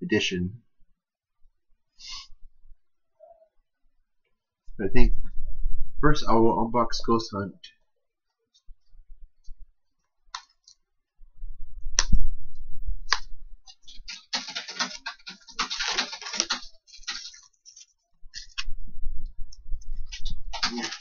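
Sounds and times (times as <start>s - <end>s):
plastic wrap crinkling: 13.7s - 18.7s, 20.0s - 21.0s
fingers clicking on plastic: 13.9s - 17.4s.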